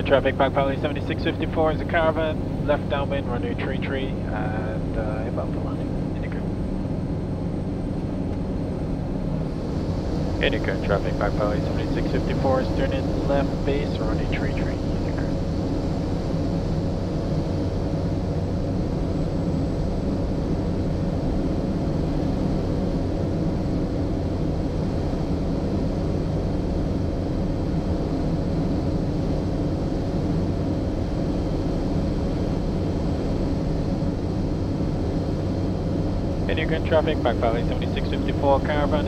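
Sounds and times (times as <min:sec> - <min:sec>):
faint steady tones: 0:00.0 - 0:39.0
turboprop engine droning: 0:00.0 - 0:39.0.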